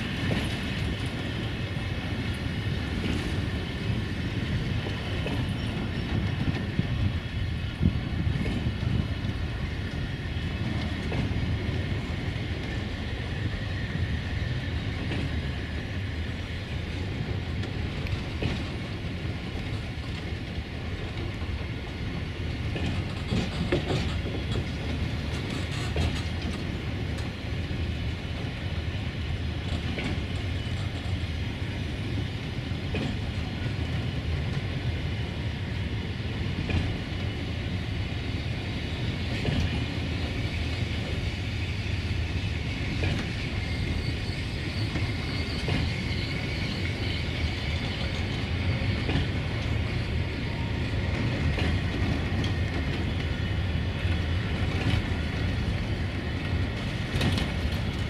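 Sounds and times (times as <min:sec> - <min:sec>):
train wheels rumbling on rails: 0:00.0 - 0:58.0
wheels clacking over track joints: 0:22.6 - 0:27.4, 0:51.1 - 0:53.4, 0:54.0 - 0:58.0.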